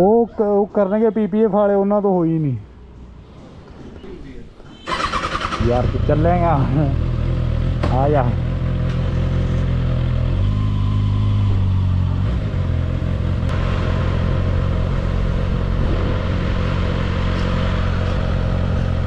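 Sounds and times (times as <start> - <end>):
motorcycle engine at low revs: 5.8 - 19.0.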